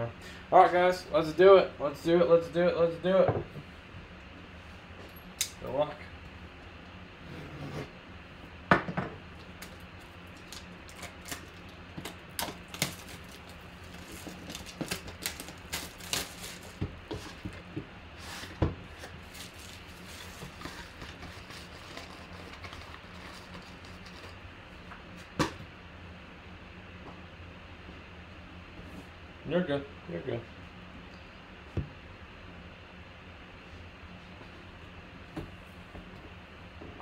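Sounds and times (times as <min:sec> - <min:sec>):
shrink wrap crackling: 0:09.6 - 0:17.5, 0:18.9 - 0:24.4.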